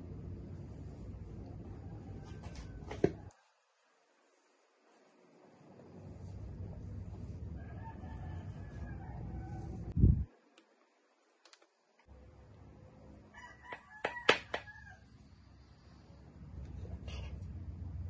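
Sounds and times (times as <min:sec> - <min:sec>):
low steady hum: 0:00.0 - 0:13.6
rooster crowing: 0:01.6 - 0:03.4, 0:07.6 - 0:09.9, 0:13.3 - 0:15.2.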